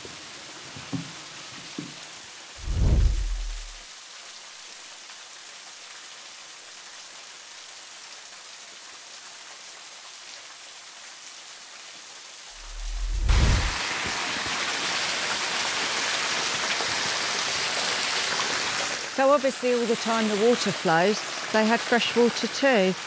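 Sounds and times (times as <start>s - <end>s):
low thump: 2.6s - 3.8s, 12.6s - 13.8s
waterfall rushing: 2.6s - 3.8s, 12.6s - 15.5s, 18.6s - 23.0s.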